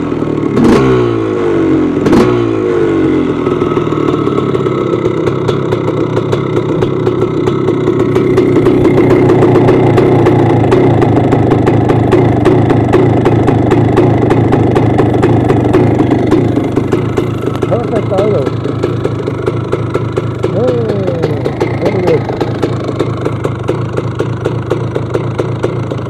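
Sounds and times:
two-stroke engine idling: 0.0s - 26.0s
engine throttle blip: 5.2s - 26.0s.

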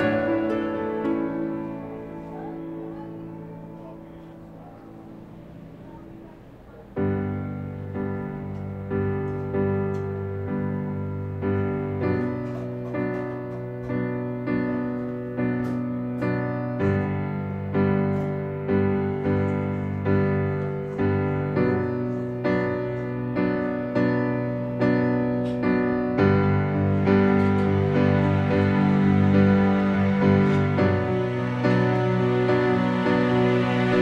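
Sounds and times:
gentle piano music: 0.0s - 34.0s.

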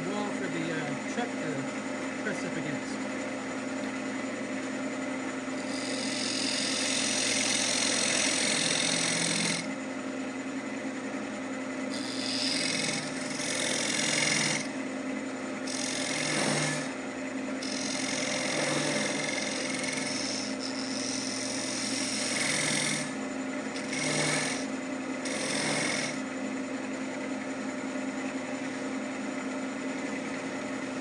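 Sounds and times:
wood lathe humming: 0.0s - 29.3s
turning tool cutting wood hiss: 5.6s - 9.7s, 11.9s - 14.7s, 15.7s - 16.9s, 17.6s - 23.2s, 23.8s - 26.2s.

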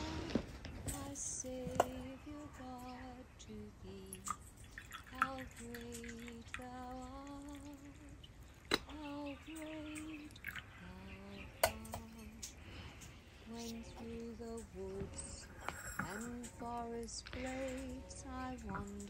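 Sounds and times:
tea pouring into cup: 4.1s - 8.8s, 9.4s - 10.8s
glass and china clinks: 11.6s - 12.6s, 13.5s - 19.0s.

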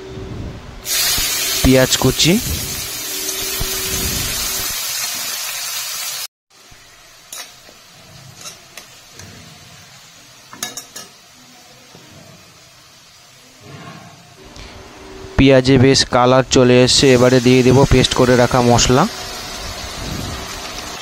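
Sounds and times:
onions sizzling in oil: 0.8s - 13.6s, 16.9s - 21.0s.

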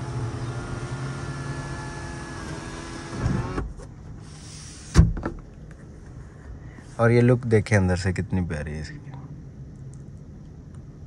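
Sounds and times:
sunroof motor running: 0.0s - 5.0s.

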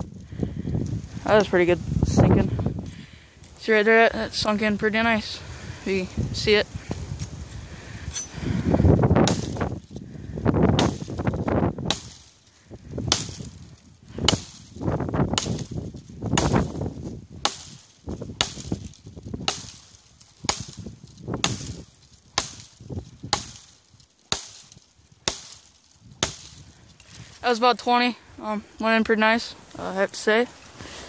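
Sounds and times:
branches rustling: 0.0s - 31.0s
axe striking wood: 9.2s - 9.7s, 10.7s - 12.3s, 13.1s - 13.6s, 14.2s - 14.7s, 15.3s - 21.8s, 22.4s - 23.7s, 24.3s - 26.6s.

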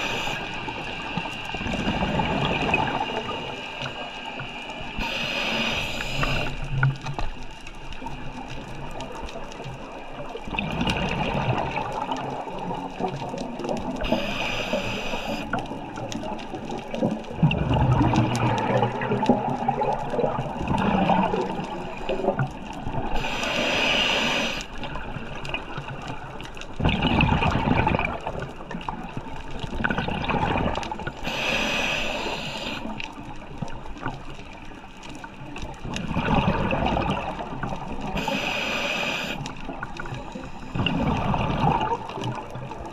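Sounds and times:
regulator inhale hiss: 0.0s - 6.8s, 14.0s - 15.6s, 23.1s - 24.9s, 31.2s - 33.1s, 38.1s - 41.0s
gurgling exhaust bubbles: 16.9s - 22.3s, 40.7s - 42.8s.

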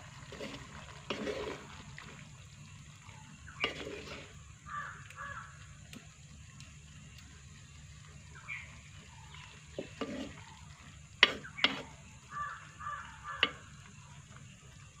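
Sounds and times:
crow cawing: 4.6s - 5.7s, 12.2s - 13.8s.

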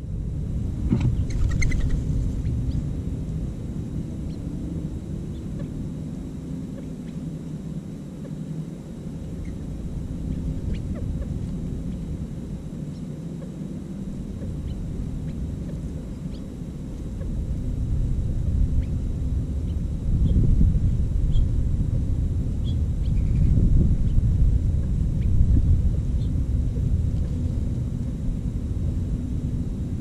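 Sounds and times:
low outdoor rumble: 0.0s - 30.0s
bird chirps: 1.2s - 2.8s, 22.6s - 24.2s.

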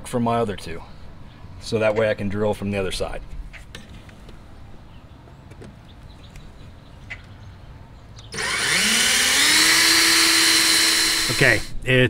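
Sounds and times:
cordless drill whining: 8.3s - 11.8s.

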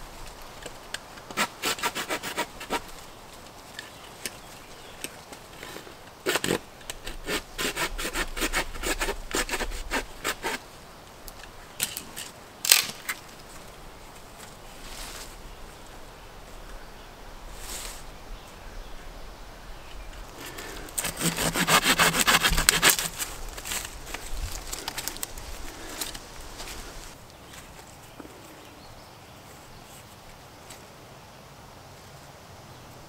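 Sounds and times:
hand saw cutting branch: 1.3s - 2.9s, 6.2s - 10.6s, 20.4s - 24.0s
sharp wood crack: 11.4s - 13.5s, 20.4s - 26.2s.

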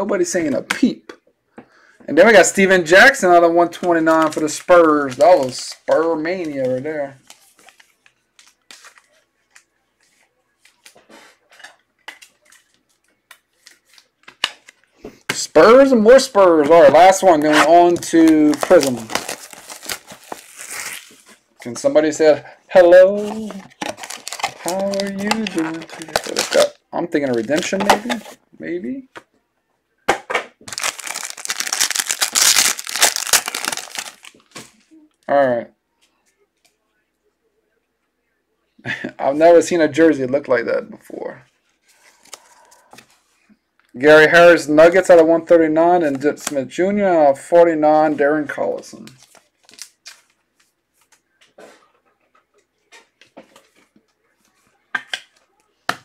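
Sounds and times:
trading cards rustling: 3.3s - 11.0s, 11.6s - 15.1s, 15.7s - 22.2s, 22.8s - 28.4s, 30.7s - 34.9s
foil wrapper tearing and crinkling: 17.6s - 21.2s, 23.7s - 26.7s, 30.7s - 34.4s.

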